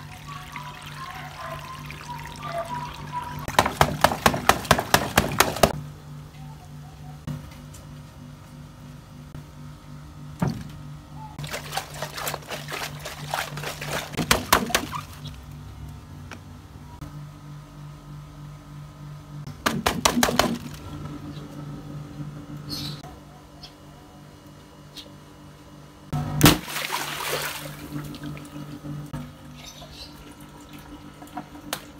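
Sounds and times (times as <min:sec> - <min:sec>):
water gushing and splashing: 0:11.4 - 0:15.2, 0:26.5 - 0:28.4.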